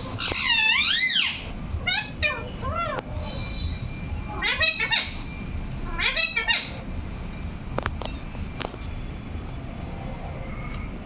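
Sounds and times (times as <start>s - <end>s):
parakeet harsh call: 0.0s - 6.9s.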